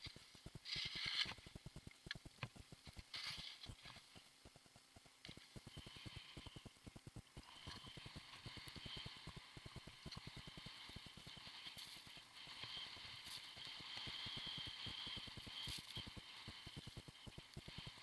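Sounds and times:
skis hissing on snow: 7.4 - 18.0.

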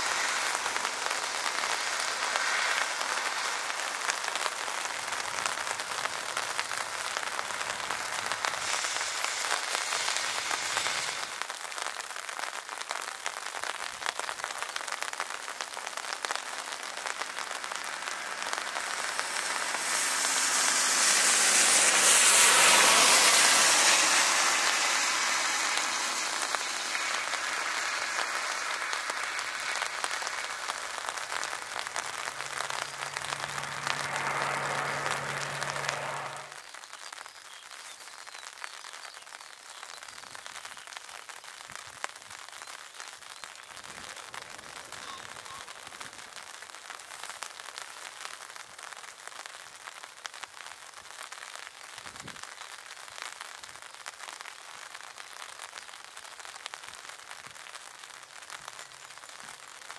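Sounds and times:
rain hiss: 0.0 - 59.9
turboprop aircraft engines: 7.6 - 11.3, 17.2 - 36.6.

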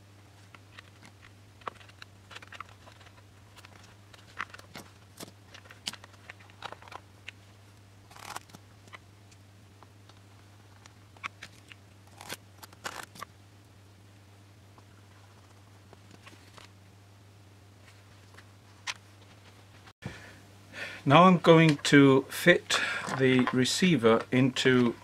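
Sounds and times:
hands handling small parts: 0.4 - 7.4, 22.8 - 25.0.

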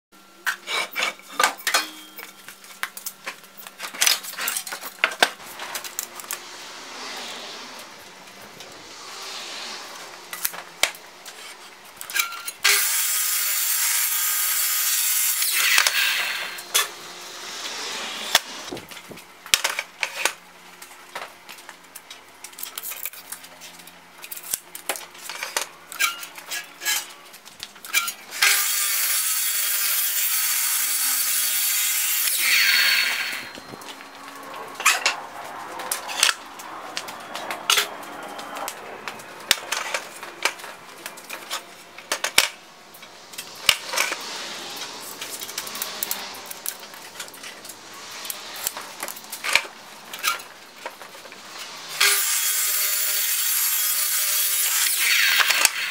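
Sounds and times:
miter saw cutting wood: 5.3 - 18.8, 27.9 - 36.5, 51.8 - 55.9.

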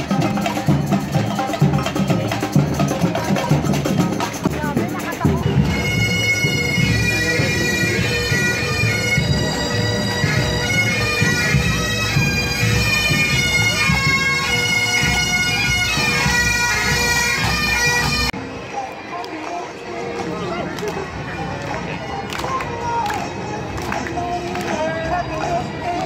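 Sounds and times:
drums beating: 0.0 - 18.4
bagpipes playing: 4.9 - 18.4.

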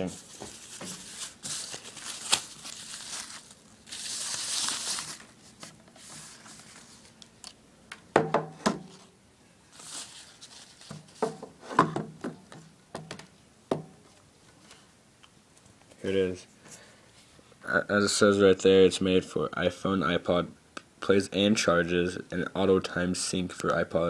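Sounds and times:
plastic bag crinkling: 0.0 - 7.2.

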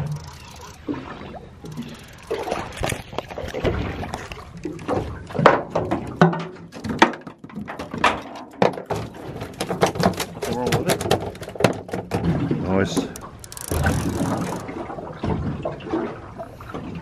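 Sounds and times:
water sloshing at hull: 0.0 - 17.0
fish knocking in aluminium boat: 5.4 - 14.7.

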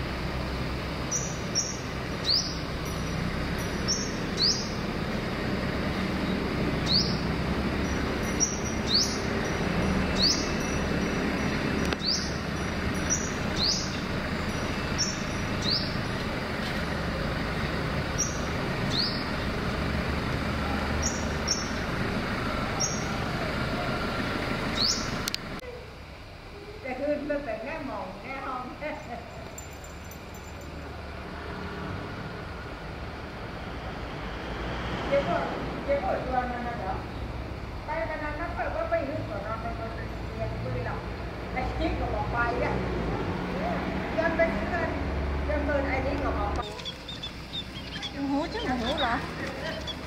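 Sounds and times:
traffic hum: 0.0 - 50.0
bird chirping: 1.1 - 4.9, 5.9 - 16.4, 18.0 - 19.6, 21.0 - 21.9, 22.8 - 23.2, 24.7 - 25.3, 46.6 - 50.0.

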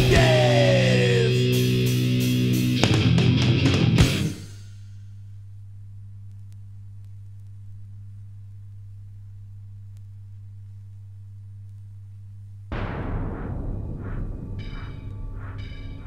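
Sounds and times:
thrash metal music: 0.0 - 4.7, 12.7 - 16.0
low electrical hum: 4.5 - 12.8.

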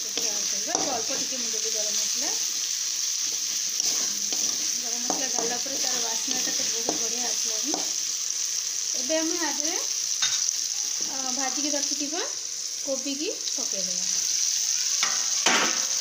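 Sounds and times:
masala sizzling in oil: 0.0 - 16.0
metal spatula scraping pan: 3.2 - 7.1.

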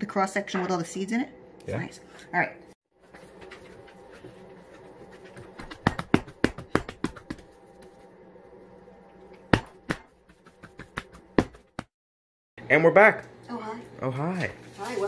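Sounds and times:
hands patting bread dough: 5.1 - 7.6, 9.5 - 12.0.

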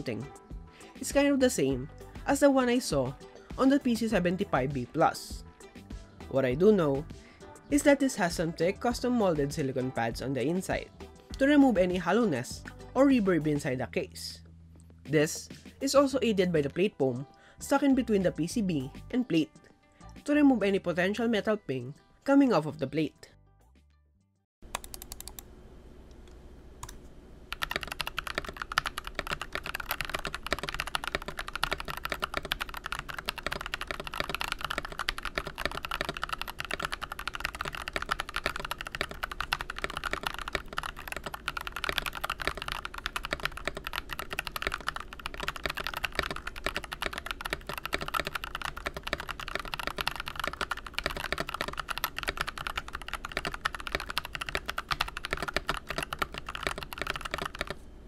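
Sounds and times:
fast typing on mechanical keyboard: 24.7 - 25.4, 27.5 - 57.8.

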